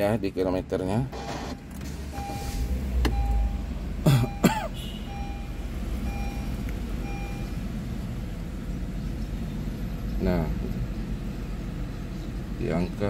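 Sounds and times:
car engine starting and idling: 0.0 - 13.0
dashboard warning chime beeping: 1.1 - 7.7
person clearing throat: 4.0 - 4.8.

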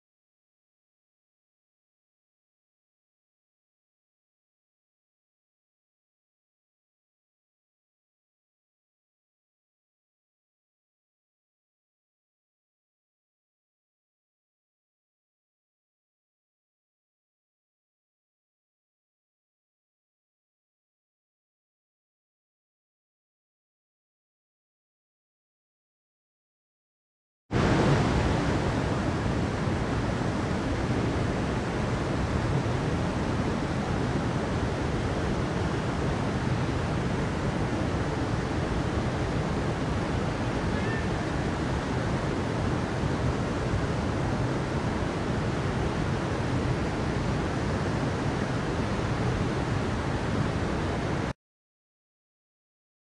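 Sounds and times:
stream rushing over rocks: 27.6 - 51.3.

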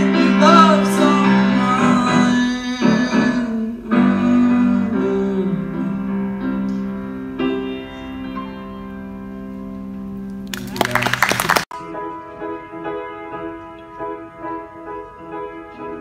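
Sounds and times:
person singing: 0.0 - 6.6
piano chords ringing: 0.0 - 11.0, 11.7 - 16.0.

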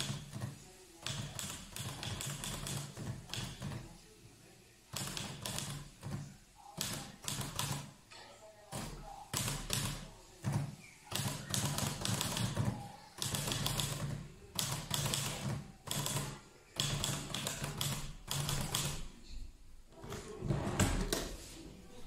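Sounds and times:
typewriter keys clacking: 11.1 - 19.0.

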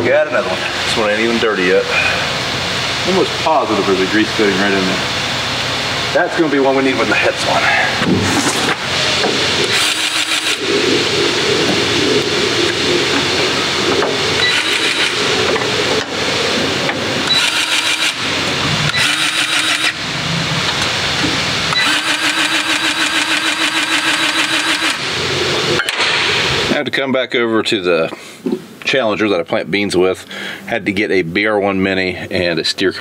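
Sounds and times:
grease gun pump pulsing: 9.7 - 10.7, 14.4 - 15.3, 17.3 - 18.2, 18.9 - 20.0, 21.7 - 25.1.

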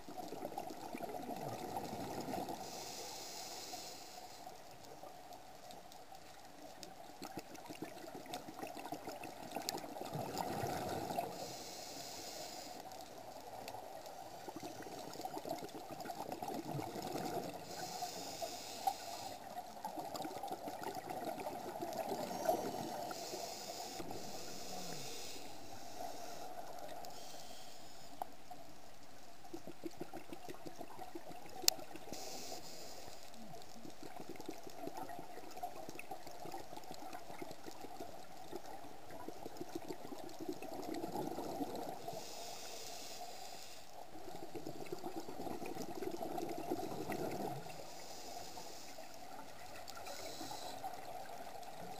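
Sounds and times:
regulator hissing inhalation: 2.6 - 4.4, 11.3 - 12.9, 17.6 - 19.5, 22.2 - 28.2, 32.1 - 33.2.

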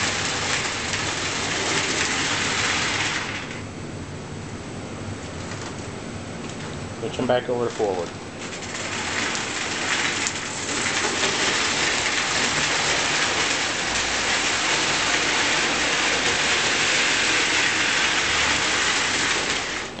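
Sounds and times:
toy train running on track: 8.8 - 20.0.

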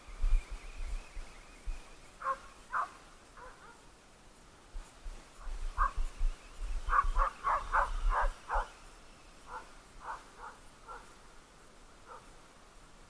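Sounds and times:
dog barking: 2.2 - 3.8, 6.9 - 8.7, 9.5 - 11.1, 12.0 - 12.3.

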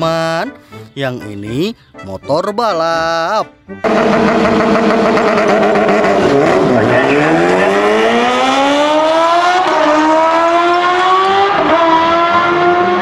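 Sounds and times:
motorcycles accelerating at full throttle: 3.8 - 13.0.

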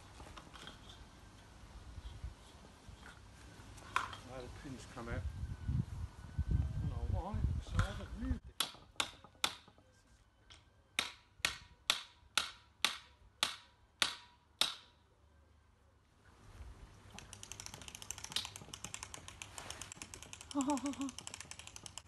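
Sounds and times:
parasol crank ratchet clicking: 17.2 - 22.0.

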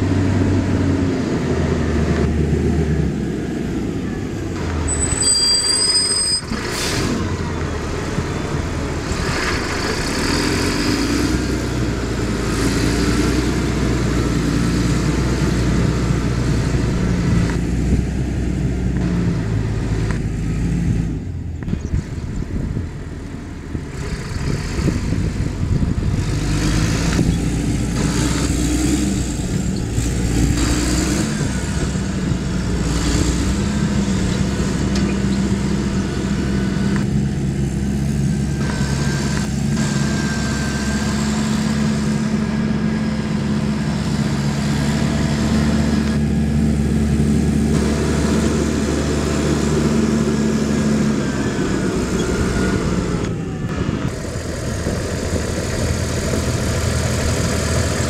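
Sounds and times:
diesel engine running: 0.0 - 58.0
high whistle: 4.9 - 6.5.

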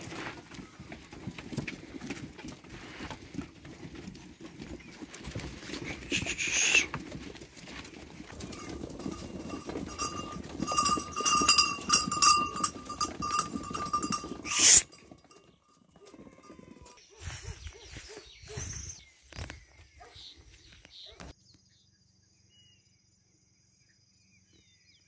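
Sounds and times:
sheep bell clanking: 7.6 - 17.0.

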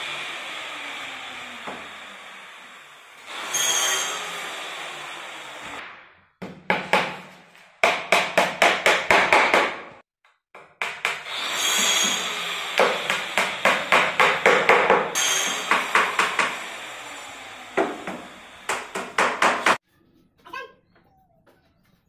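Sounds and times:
hammer striking wooden boards: 6.4 - 10.0, 10.6 - 11.2, 12.8 - 16.6, 17.8 - 19.8.

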